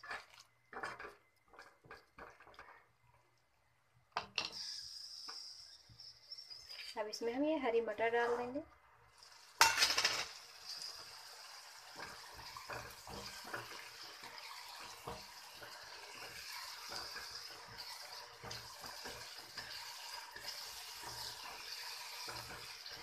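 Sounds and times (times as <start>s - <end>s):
spatula scraping and tapping pan: 0.0s - 2.9s, 11.9s - 23.0s
gravy sizzling in a pan: 0.0s - 7.4s, 8.1s - 23.0s.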